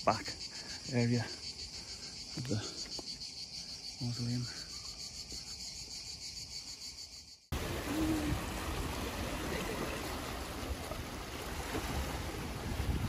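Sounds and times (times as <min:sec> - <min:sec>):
cicadas buzzing: 0:00.0 - 0:13.0
sea water splashing on rocks: 0:07.6 - 0:13.0.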